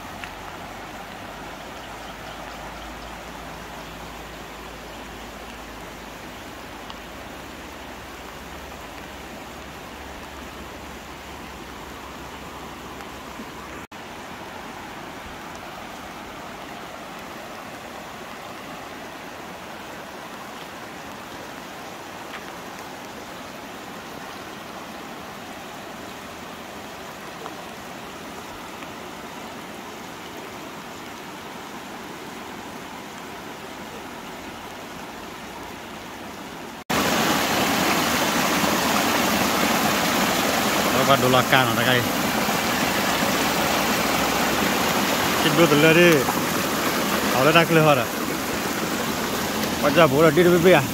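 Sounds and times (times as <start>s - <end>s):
water rushing through fields: 0.0s - 50.9s
muddy water swirling: 36.9s - 50.9s.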